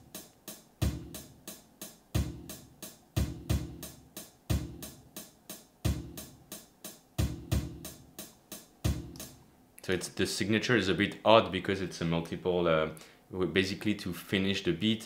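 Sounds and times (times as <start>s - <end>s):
drum machine beat: 0.0s - 9.4s
hi-hat and snare samples: 0.0s - 11.2s
deep kick drum hits: 8.9s - 9.2s.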